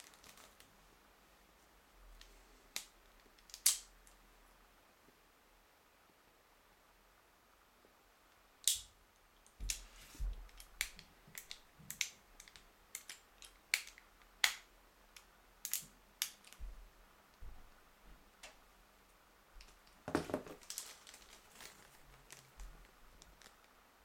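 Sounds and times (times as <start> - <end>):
plastic bag crinkling: 0.0 - 0.7, 20.1 - 23.7.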